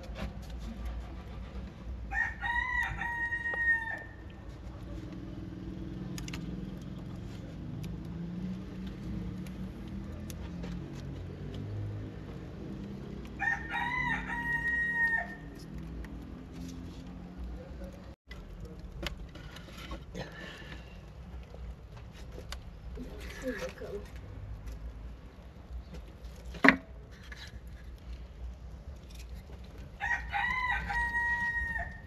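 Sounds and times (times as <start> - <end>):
rooster crowing: 2.1 - 4.3, 13.4 - 15.6, 30.0 - 32.0.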